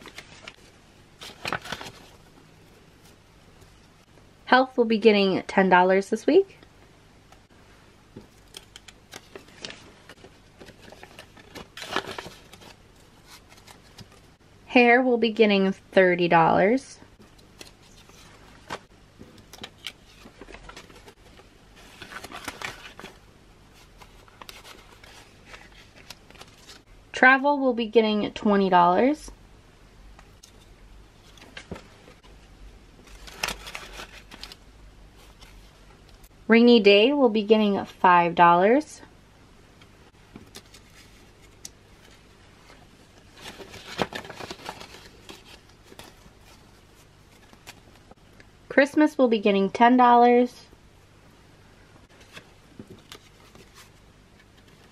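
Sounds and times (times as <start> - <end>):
paper banknotes rustling: 0.0 - 2.3, 8.4 - 14.3, 17.3 - 26.8, 33.1 - 34.6, 40.5 - 48.0.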